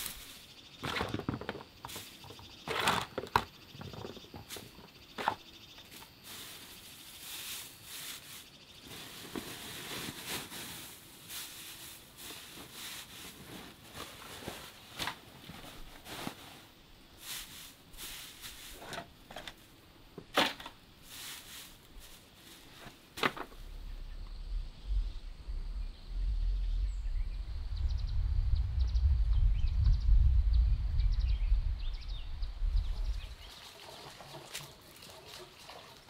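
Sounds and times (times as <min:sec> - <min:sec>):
firewood knocking and clattering: 0:22.8 - 0:23.7.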